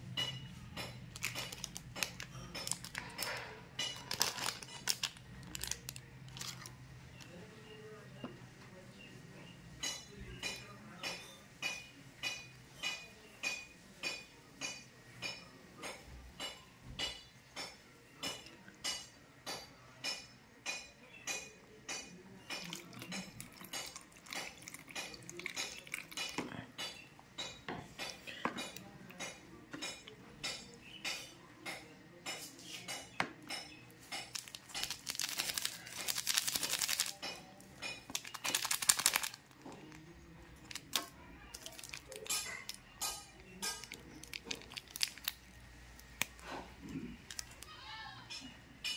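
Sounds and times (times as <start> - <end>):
plastic sachet tearing: 1.1 - 3.3, 3.9 - 6.8, 34.3 - 37.2, 38.1 - 39.6, 40.6 - 42.4, 43.8 - 45.4, 47.3 - 47.7
plastic sachet crinkling: 1.1 - 6.8, 34.2 - 37.3, 38.1 - 40.0, 40.6 - 42.8, 43.7 - 46.4, 47.2 - 47.7.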